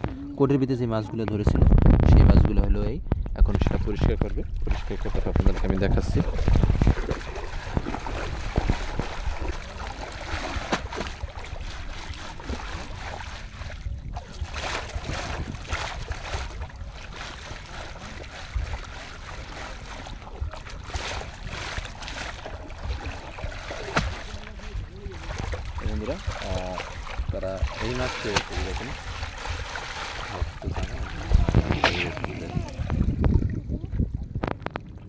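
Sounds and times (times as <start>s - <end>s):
water sloshing and splashing: 3.0s - 35.0s.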